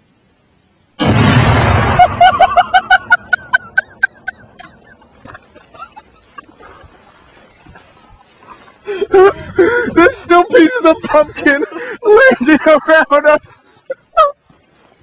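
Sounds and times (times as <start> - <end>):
explosive blast: 1.0 - 3.6.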